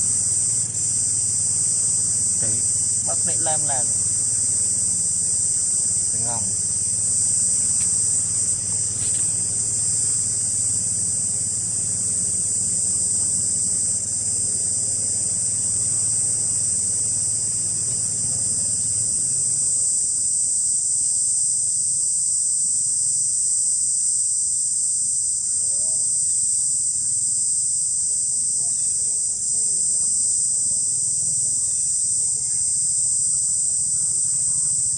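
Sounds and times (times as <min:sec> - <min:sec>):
faint low hum: 0:00.0 - 0:24.1, 0:25.1 - 0:34.9
insects buzzing: 0:00.0 - 0:34.9.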